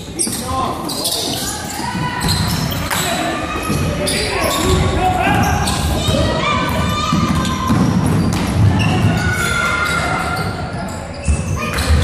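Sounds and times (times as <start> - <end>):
sneakers squeaking: 0.0 - 12.0
basketball bouncing: 4.6 - 9.5.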